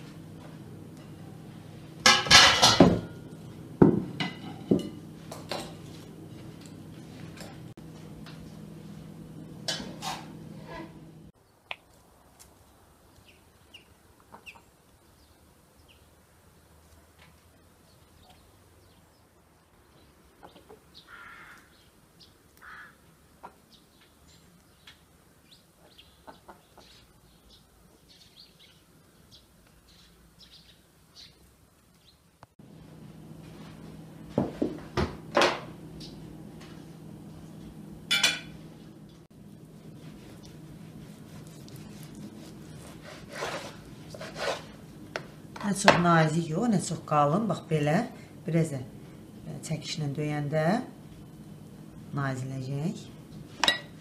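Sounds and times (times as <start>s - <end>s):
steady indoor hum: 0.0s - 11.4s, 32.6s - 54.0s
kitchenware knocking: 2.1s - 3.2s, 3.8s - 5.0s
small birds chirping: 12.6s - 16.2s, 17.8s - 32.5s
chickens clucking: 25.8s - 27.0s.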